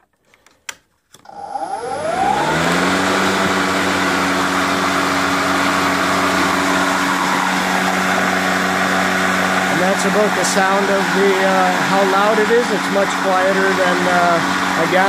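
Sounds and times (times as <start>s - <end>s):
electric mower motor whine: 1.2s - 15.0s.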